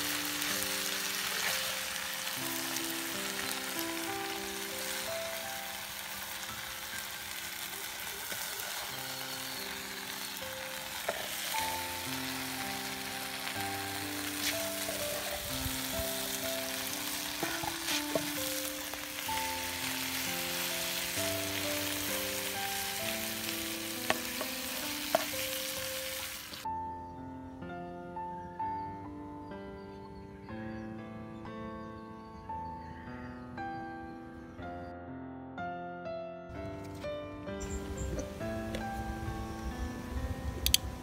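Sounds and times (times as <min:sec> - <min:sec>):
food sizzling in a pan: 0:00.0 - 0:26.7
soft background music: 0:00.0 - 0:41.0.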